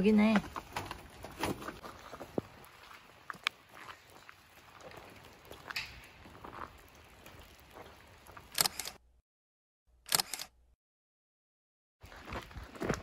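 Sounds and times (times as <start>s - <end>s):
footsteps on gravel: 0.1s - 9.0s, 12.0s - 13.0s
loud gravel crunches: 0.2s - 9.0s, 12.0s - 13.0s.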